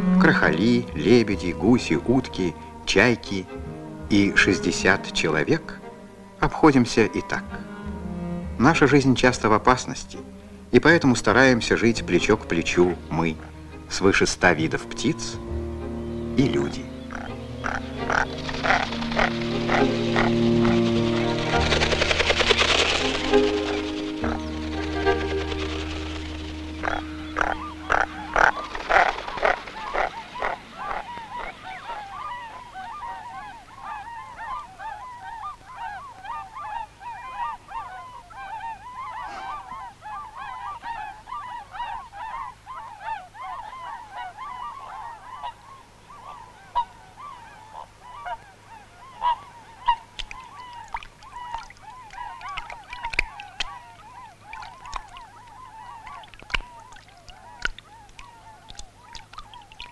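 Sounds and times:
music: 0.0 - 30.0
waterbirds calling: 0.0 - 59.9.

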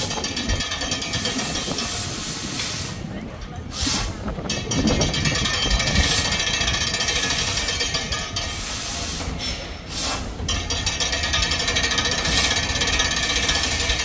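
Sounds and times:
mechanical rattle and clatter: 0.0 - 2.4, 4.2 - 14.0
steam hissing: 1.0 - 4.2, 5.9 - 10.5, 11.4 - 14.0.

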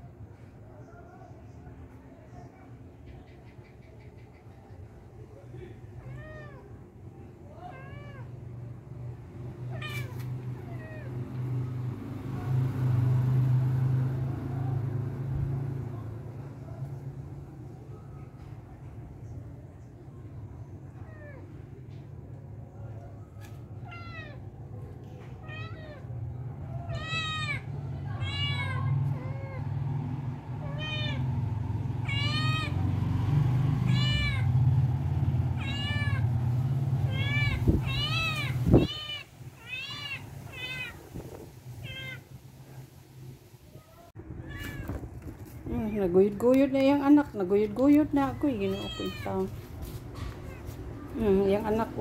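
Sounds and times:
kitten mewing: 32.0 - 32.8, 33.9 - 34.5, 35.6 - 36.3, 37.0 - 41.2.

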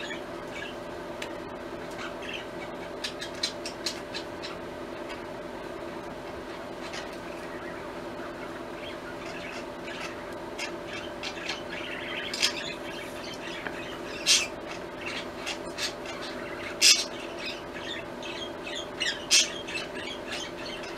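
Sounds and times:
bird chirping: 2.0 - 4.6, 6.9 - 20.9
bird shrieking: 6.9 - 20.9.

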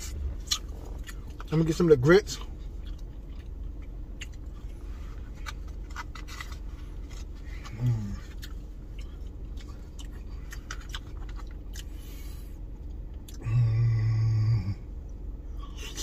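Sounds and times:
chewing: 0.0 - 13.5
man humming mmm: 13.4 - 14.9.

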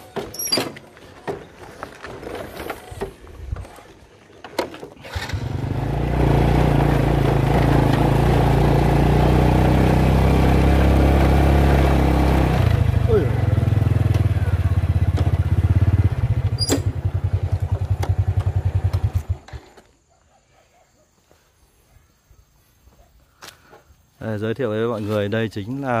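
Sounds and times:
motorbike engine running: 5.1 - 19.7.

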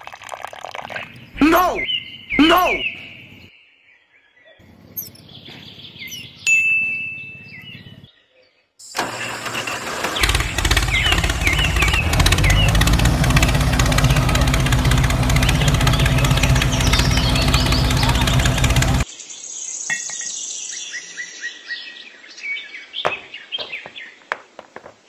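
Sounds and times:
small birds chirping: 0.9 - 9.4, 10.2 - 24.3
tractor engine running: 9.0 - 19.0.

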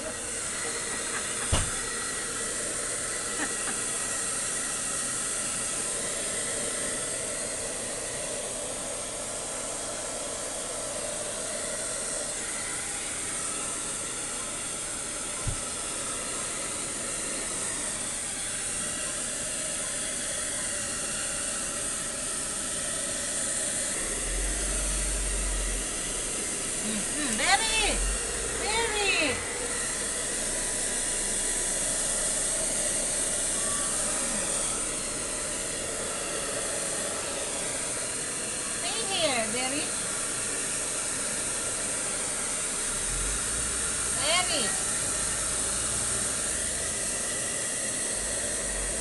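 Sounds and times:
hair dryer blowing: 0.0 - 49.0.

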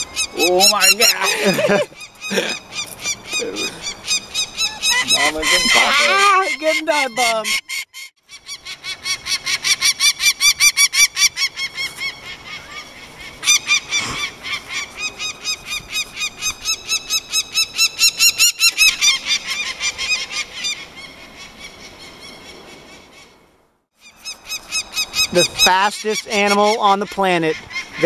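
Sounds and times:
falcon alarm call: 0.0 - 21.1, 24.0 - 28.0.

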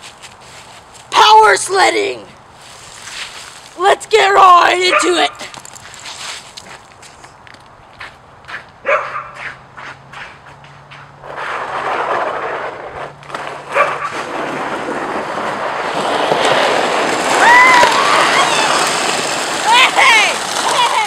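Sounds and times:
sled scraping on ice: 0.0 - 7.2, 9.4 - 21.0
dog barking: 8.8 - 9.5, 13.7 - 14.1.

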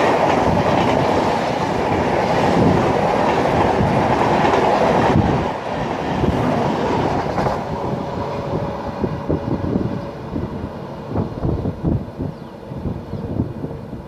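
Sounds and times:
train wheels clattering on rails: 0.0 - 8.7.

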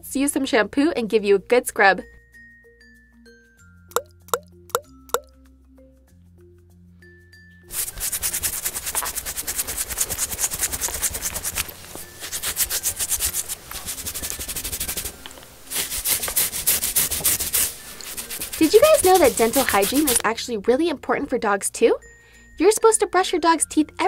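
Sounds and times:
sponge scrubbing wet fur: 7.7 - 20.3.

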